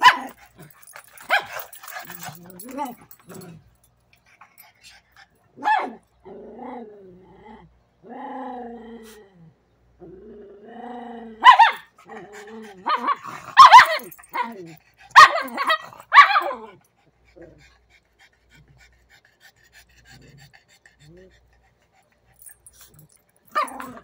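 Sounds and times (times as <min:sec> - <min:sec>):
dogs barking sharply: 0:00.0 - 0:03.0, 0:05.6 - 0:06.0, 0:11.4 - 0:11.9, 0:12.8 - 0:16.7
dogs growling: 0:00.0 - 0:05.3, 0:06.2 - 0:24.0.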